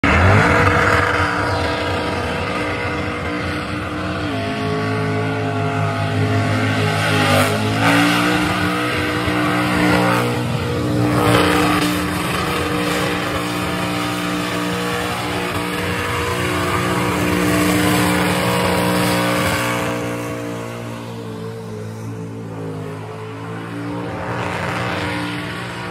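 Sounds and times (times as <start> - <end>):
car engine at high revs: 0.0 - 25.9.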